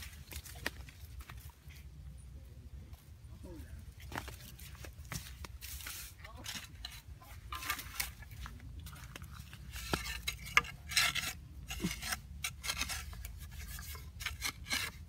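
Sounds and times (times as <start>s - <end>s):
hoe chopping and scraping dirt: 4.0s - 15.0s.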